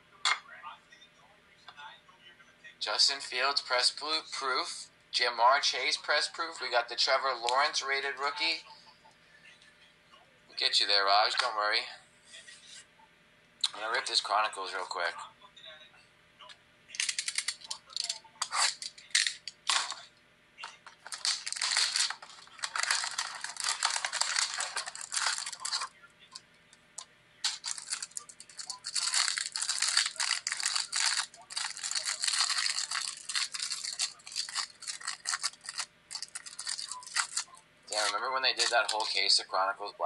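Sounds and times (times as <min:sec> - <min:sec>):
plastic wrapping tearing: 0:16.9 - 0:20.1, 0:21.0 - 0:25.9, 0:27.4 - 0:39.2.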